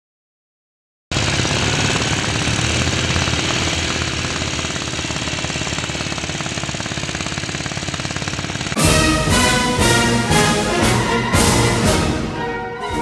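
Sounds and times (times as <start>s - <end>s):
rapid mechanical rattle: 1.1s - 9.8s.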